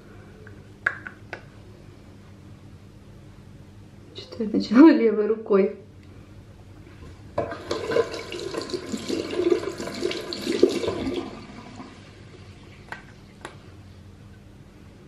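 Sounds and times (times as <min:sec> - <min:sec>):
tap water running into sink: 0:07.4 - 0:11.9.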